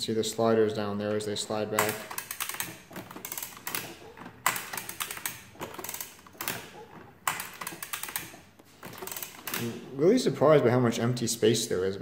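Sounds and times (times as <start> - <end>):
adding machine clicking: 1.4 - 9.9.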